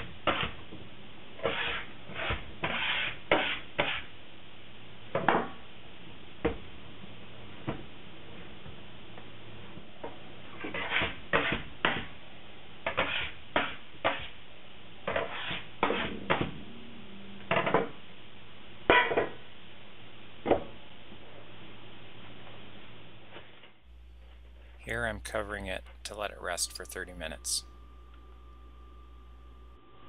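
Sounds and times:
metal scraper scraping wood: 1.4s - 4.1s, 10.6s - 12.0s, 12.8s - 14.3s, 15.1s - 16.2s
low steady hum: 15.7s - 30.0s.

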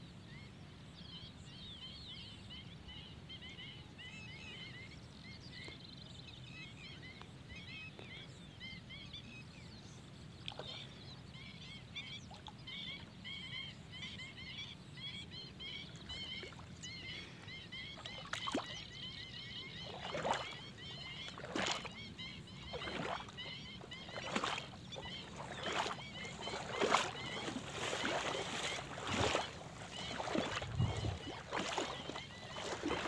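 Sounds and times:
birds chirping: 10.4s - 33.0s
splashes in water: 18.0s - 19.0s, 19.8s - 33.0s
low rumble of wind: 20.0s - 33.0s.

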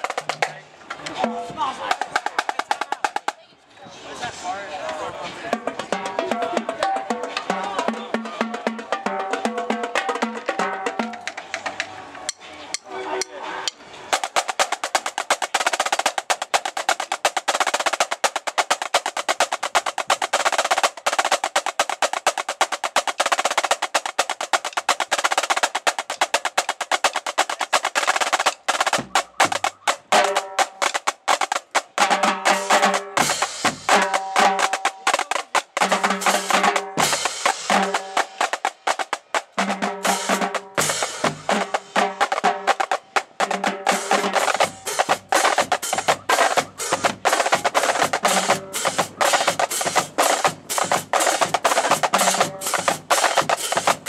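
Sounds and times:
snare drums rolling: 0.0s - 3.4s, 5.4s - 12.4s, 13.5s - 54.0s
tenor drums pitched strokes: 32.5s - 54.0s.

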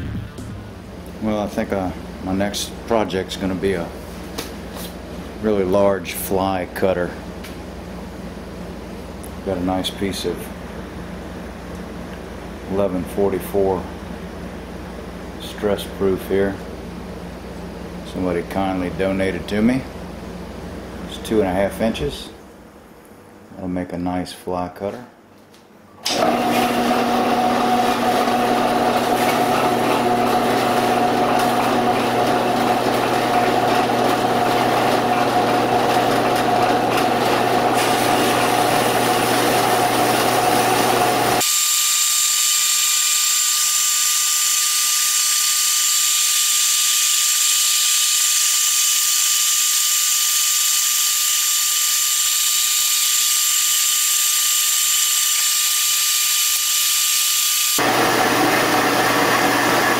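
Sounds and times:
band saw cutting steel bar: 26.1s - 41.6s.

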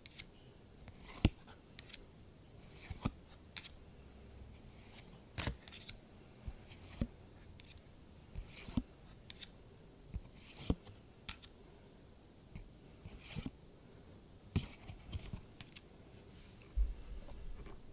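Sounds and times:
trading cards scraping and snapping: 0.0s - 0.3s, 1.0s - 2.0s, 2.7s - 3.8s, 4.8s - 6.0s, 8.4s - 9.5s.

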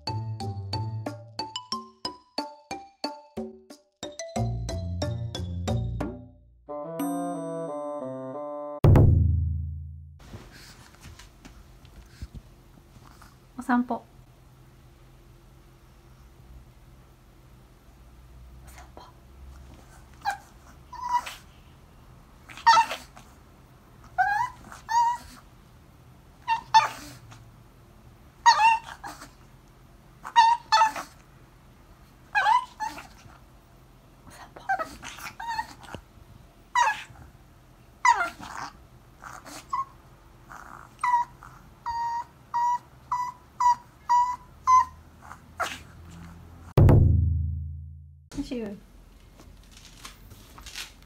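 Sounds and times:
small dog whining and yipping: 19.9s - 21.5s, 22.4s - 23.4s, 24.0s - 25.5s, 26.4s - 27.4s, 28.4s - 29.4s, 30.2s - 31.2s, 32.2s - 33.4s, 34.6s - 36.1s, 36.7s - 37.3s, 38.0s - 46.3s.

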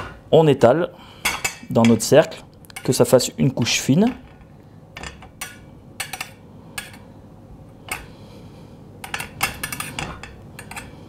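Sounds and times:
metal spoon clinking and scraping: 9.0s - 11.0s.

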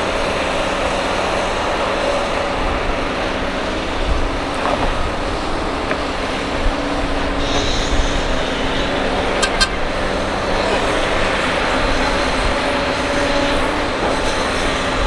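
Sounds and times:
diesel excavator running: 0.0s - 15.0s.

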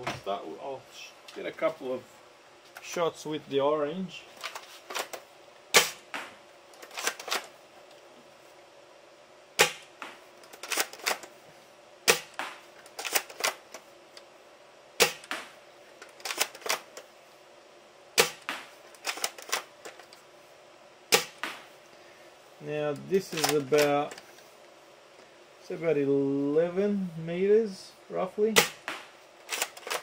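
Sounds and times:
gel blaster shots cracking: 5.7s - 6.4s, 9.6s - 10.1s.

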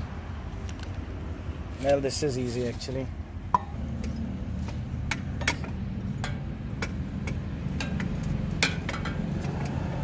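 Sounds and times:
light metallic clicks and taps: 3.5s - 9.2s.

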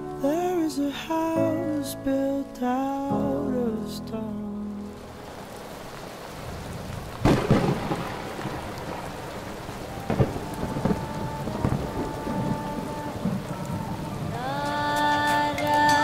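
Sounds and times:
rain falling: 0.0s - 16.0s
thunder cracks: 6.4s - 14.6s.

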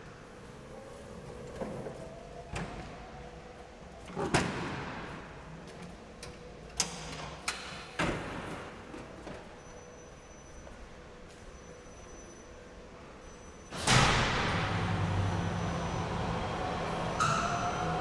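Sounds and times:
sharp knocks echoing in hall: 13.8s - 18.0s.

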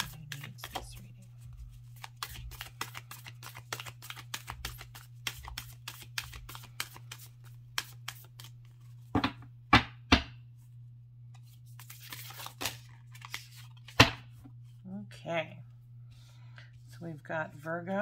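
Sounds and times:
cards being shuffled: 0.0s - 9.1s, 11.3s - 14.5s.

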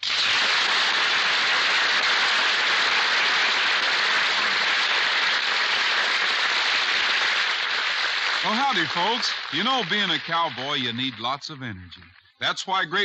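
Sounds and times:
audience applauding: 0.0s - 13.0s.

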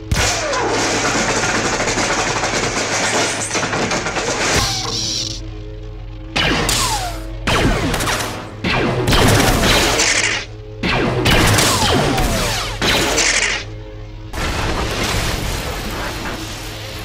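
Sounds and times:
zaps with falling laser whines: 0.0s - 5.5s, 6.3s - 13.8s
lightsaber humming: 0.0s - 17.0s.

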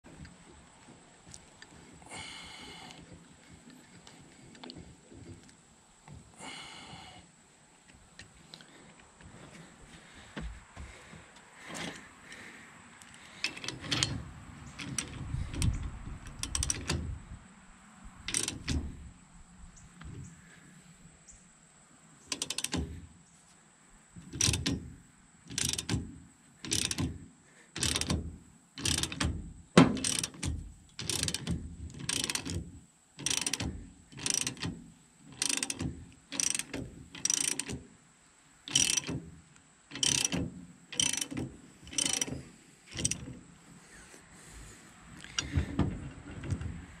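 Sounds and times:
hand ratchet clicking: 13.0s - 17.0s, 18.3s - 18.9s, 22.3s - 22.9s, 24.2s - 24.8s, 25.5s - 26.0s, 26.6s - 27.1s, 27.8s - 28.2s, 28.8s - 32.6s, 33.2s - 37.8s, 38.7s - 39.2s, 39.9s - 43.4s
metal parts knocking: 13.4s - 17.2s, 18.2s - 19.0s, 22.3s - 23.0s, 24.2s - 24.9s, 25.5s - 26.1s, 26.7s - 27.2s, 27.8s - 37.8s, 38.7s - 39.2s, 39.9s - 43.4s.

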